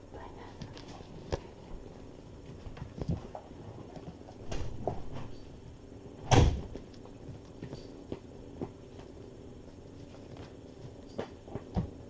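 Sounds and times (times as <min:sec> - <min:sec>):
loud thump: 0:06.3 - 0:06.7.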